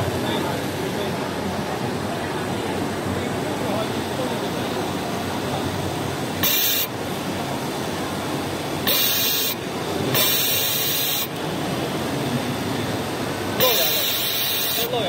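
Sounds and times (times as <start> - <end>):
pneumatic air hiss: 6.4 - 6.9, 8.8 - 11.3, 13.6 - 15.0.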